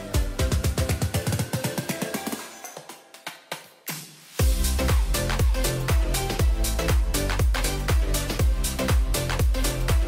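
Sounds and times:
kick drum beat: 0:00.0 - 0:02.3, 0:04.4 - 0:10.0
upbeat electronic music: 0:00.0 - 0:10.0.

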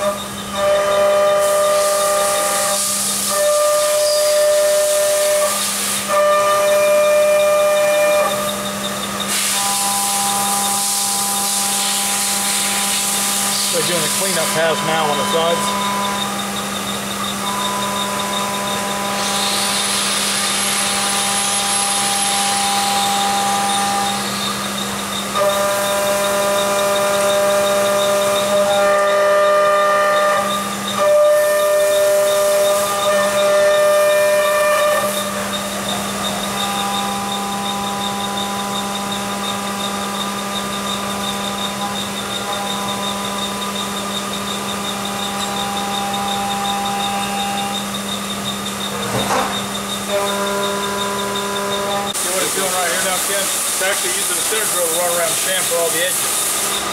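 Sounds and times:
milling machine whine: 0:00.0 - 0:56.9
coolant spray hiss: 0:52.2 - 0:56.8.

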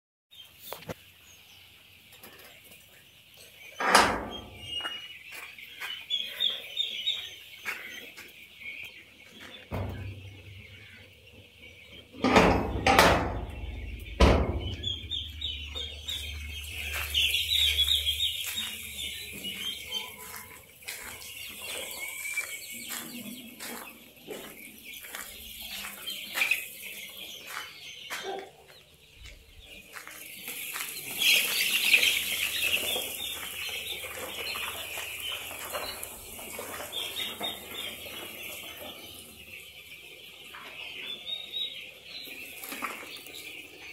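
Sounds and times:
chickens clucking and peeping: 0:00.3 - 0:43.9
loud knocks: 0:12.2 - 0:15.1.

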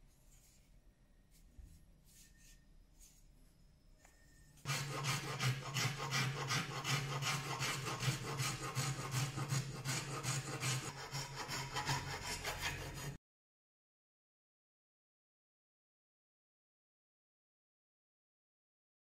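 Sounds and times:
hand file rasping on wood: 0:04.7 - 0:13.2.

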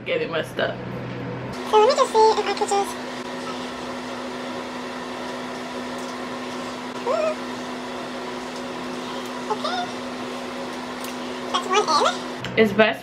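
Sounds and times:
electrical hum: 0:00.0 - 0:13.0
soft room whir: 0:00.0 - 0:13.0
woman's short rising vocal sound: 0:07.0 - 0:07.4.

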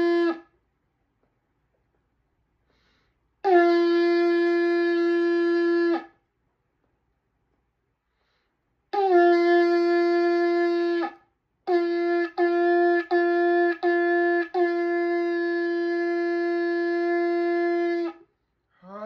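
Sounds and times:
shofar blasts: 0:00.0 - 0:00.6, 0:03.4 - 0:06.2, 0:08.9 - 0:18.2.

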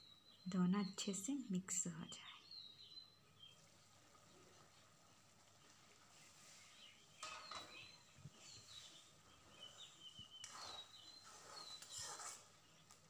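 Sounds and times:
faint bird chirps: 0:00.0 - 0:13.0
spatula scraping metal pan: 0:10.4 - 0:12.5.

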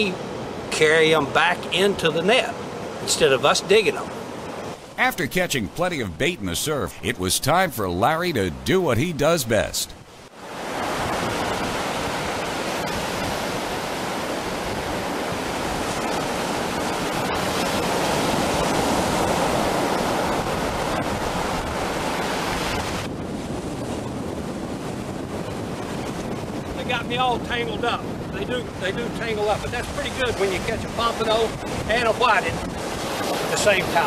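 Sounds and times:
ocean surf breaking on beach: 0:10.4 - 0:27.0, 0:28.0 - 0:34.0.

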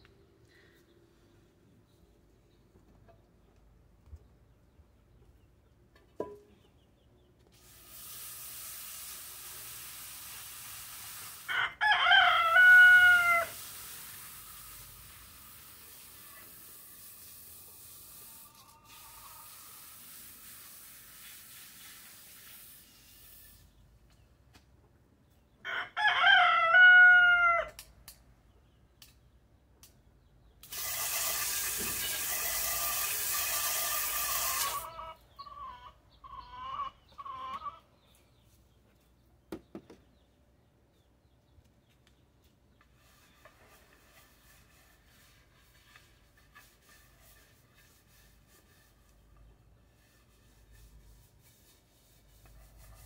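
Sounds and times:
garden hose spraying water: 0:07.5 - 0:23.8, 0:30.6 - 0:34.9
chicken calls: 0:11.5 - 0:13.6, 0:18.2 - 0:19.9, 0:32.0 - 0:38.2
rooster crowing: 0:11.5 - 0:13.6, 0:25.7 - 0:27.8.

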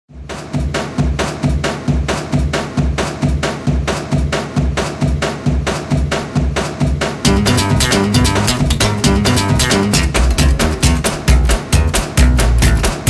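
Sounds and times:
washing machine drum-like beat: 0:00.1 - 0:13.0.

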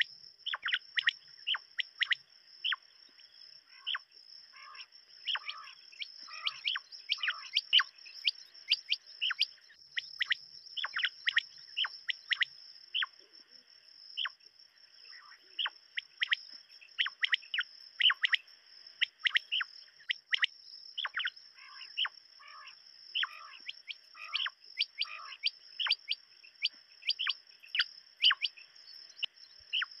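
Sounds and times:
quails calling: 0:00.0 - 0:02.8, 0:03.8 - 0:13.1, 0:17.0 - 0:18.4, 0:19.0 - 0:28.6, 0:29.7 - 0:30.0
steady high-pitched hiss: 0:00.0 - 0:30.0.

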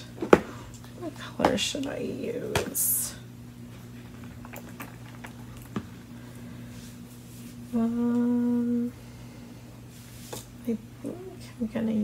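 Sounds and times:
woman humming: 0:07.7 - 0:09.2, 0:10.7 - 0:11.6.

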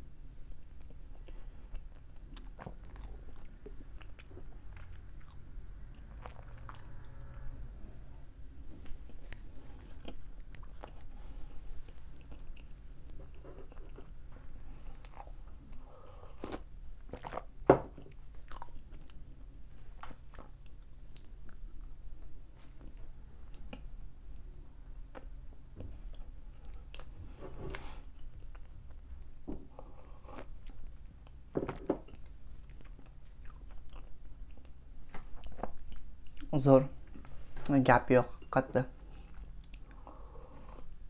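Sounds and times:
person chewing crunchy snack: 0:00.8 - 0:07.4, 0:08.9 - 0:14.1, 0:15.0 - 0:19.3, 0:32.1 - 0:34.8.

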